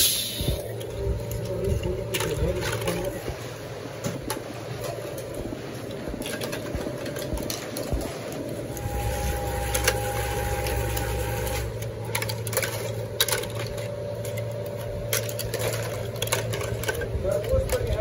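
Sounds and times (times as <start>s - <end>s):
deeper hum: 0.0s - 18.0s
machine humming: 0.0s - 18.0s
plastic pieces clicking and knocking: 12.0s - 18.0s.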